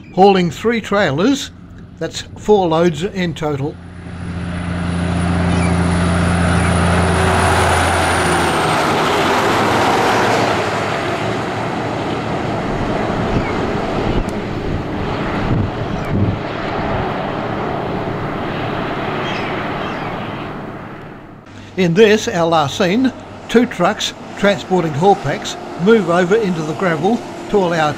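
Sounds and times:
truck engine drone: 0.0s - 27.9s
tyre and wind rush: 4.3s - 21.8s.

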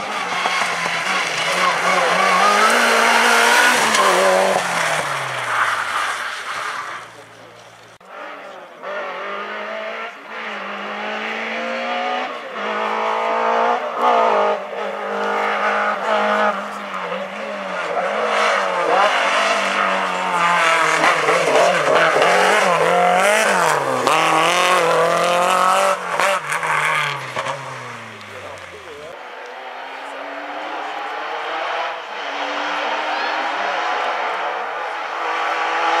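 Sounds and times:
rally car engine revving: 0.0s - 36.0s.

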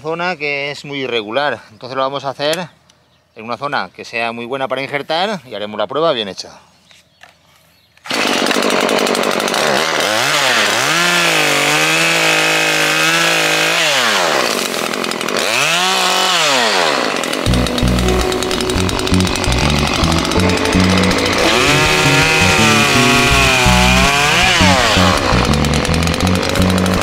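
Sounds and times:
chainsaw cutting wood: 8.0s - 27.0s.

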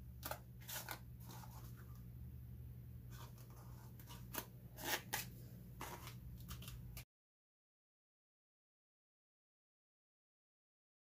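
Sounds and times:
low steady hum: 0.0s - 7.0s
hands scuffing duct tape: 3.1s - 7.0s.

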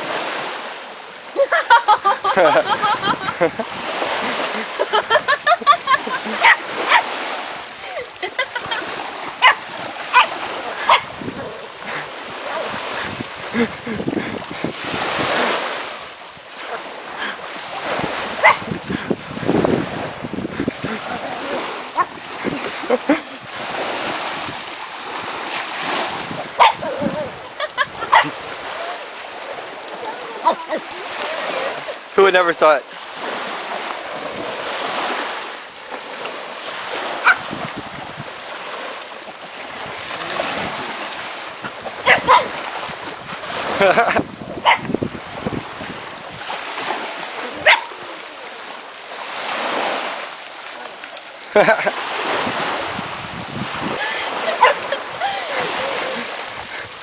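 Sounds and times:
small waves washing on beach: 0.0s - 57.0s
wind on microphone: 2.2s - 31.9s, 33.1s - 35.6s, 36.2s - 48.2s, 51.6s - 57.0s
small dog barking: 6.4s - 7.1s, 9.4s - 11.1s, 18.4s - 18.7s, 26.6s - 27.3s, 28.1s - 28.4s, 37.2s - 37.5s, 42.0s - 42.6s, 44.6s - 44.9s, 47.6s - 48.0s, 54.5s - 55.0s.

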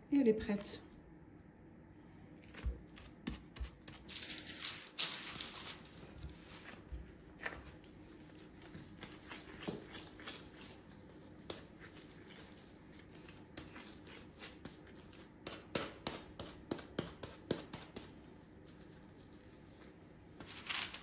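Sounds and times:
gloved hands patting dough: 2.4s - 21.0s.

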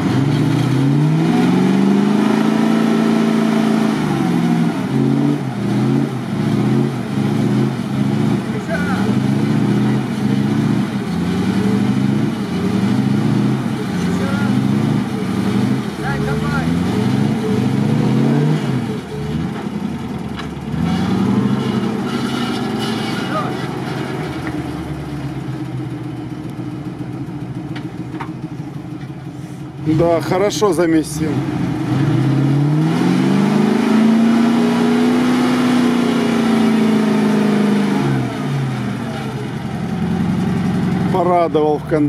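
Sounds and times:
truck engine under load: 0.0s - 42.0s.

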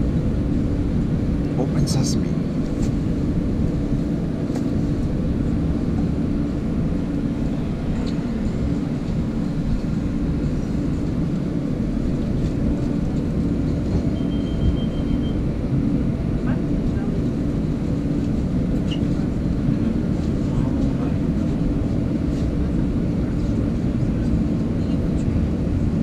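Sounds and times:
subway car equipment hum: 0.0s - 26.0s.

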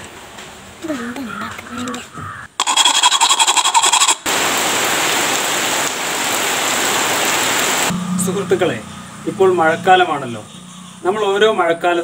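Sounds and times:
rain splashing on paving: 4.0s - 7.9s.

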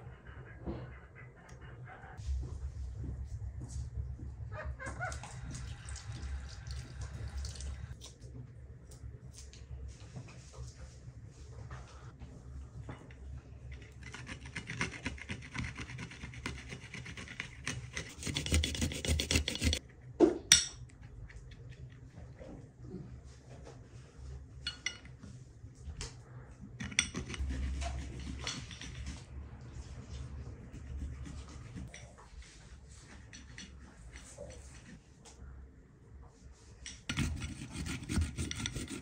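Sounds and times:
scraping and rubbing: 13.7s - 19.8s, 26.9s - 35.0s, 37.1s - 39.0s.

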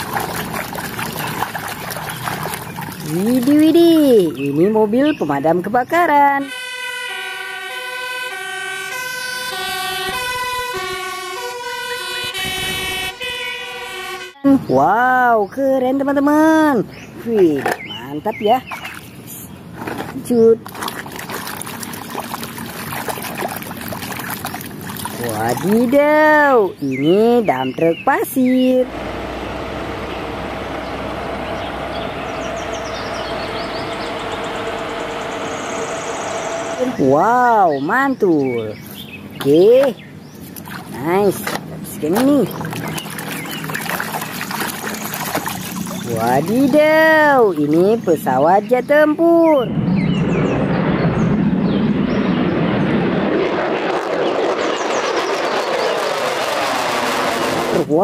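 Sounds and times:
fire engine two-tone siren: 6.4s - 14.6s, 28.9s - 37.2s
truck diesel engine running: 28.6s - 37.2s.

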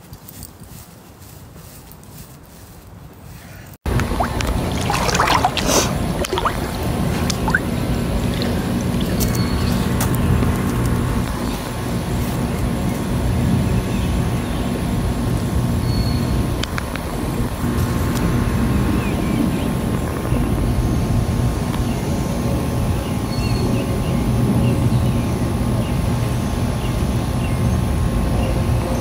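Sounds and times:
low rumbling noise: 3.9s - 26.1s.

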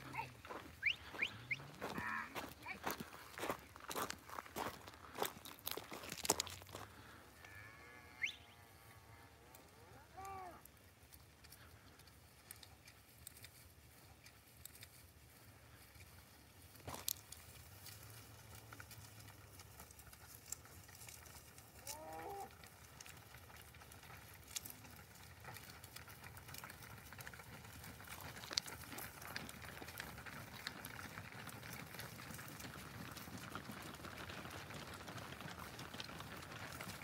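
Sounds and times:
hooves crunching on snow: 0.0s - 9.8s, 10.7s - 37.0s.

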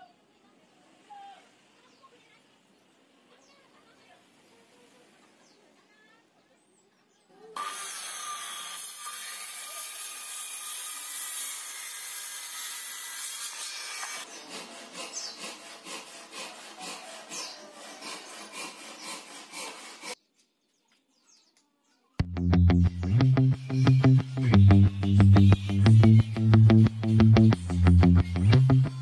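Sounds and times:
circular saw cutting wood: 7.6s - 20.2s
irregular scraping strokes: 13.1s - 20.2s
music: 22.2s - 29.0s.

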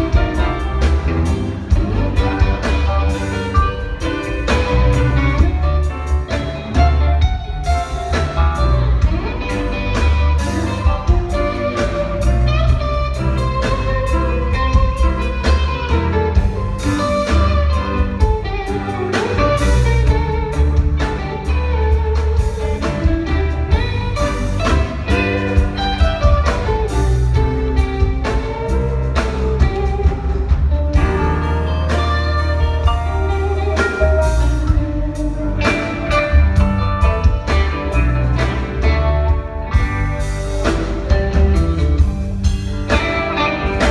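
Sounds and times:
rock band playing live: 0.0s - 43.9s.

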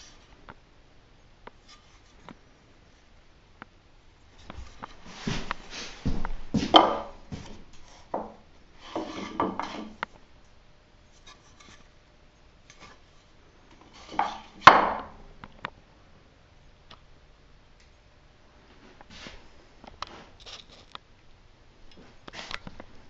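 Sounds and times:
wood scraping on wood: 1.6s - 2.5s, 4.4s - 10.1s, 11.1s - 12.0s, 12.7s - 15.1s
wooden knocks: 6.1s - 8.4s, 9.0s - 10.0s, 14.1s - 15.2s.

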